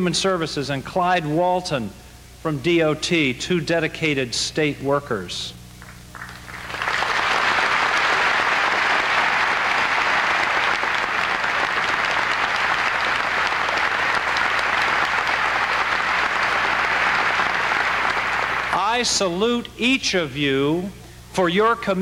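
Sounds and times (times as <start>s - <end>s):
audience applauding: 5.8s - 19.1s.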